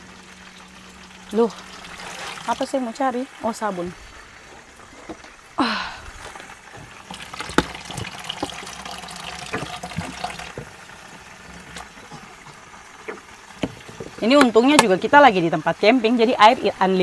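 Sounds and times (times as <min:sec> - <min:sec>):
water running from sink tap: 0:00.0 - 0:05.2, 0:06.2 - 0:17.0
handling clicks and knocks: 0:11.7 - 0:15.0.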